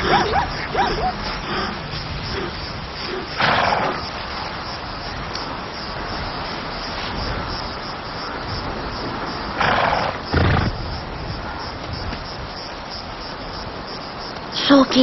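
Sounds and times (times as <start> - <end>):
faint squeaky calls: 0.0 - 3.4
lion breathy huff: 0.0 - 4.1
lion low rumble: 0.0 - 4.2.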